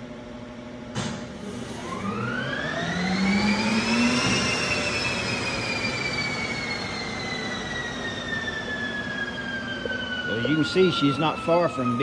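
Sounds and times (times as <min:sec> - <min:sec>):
turbine whine spinning down: 0:01.4 - 0:12.0.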